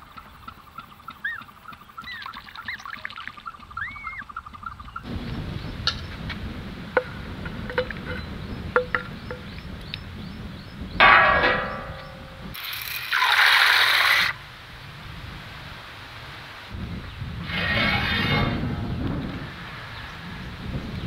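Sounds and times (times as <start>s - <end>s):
steel bowl ringing: 11.0s - 12.6s
steel utensils clinking: 11.0s - 13.0s.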